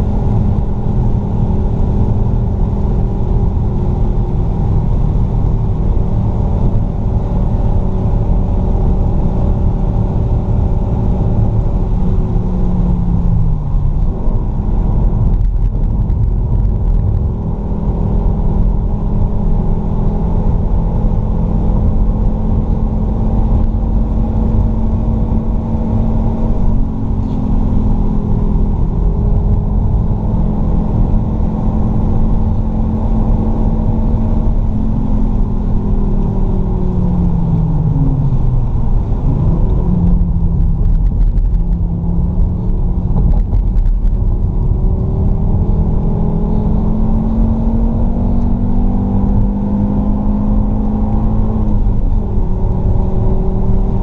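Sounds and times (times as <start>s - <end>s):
car engine pulling hard: 0.0s - 54.0s
heavy low rumble: 0.0s - 54.0s.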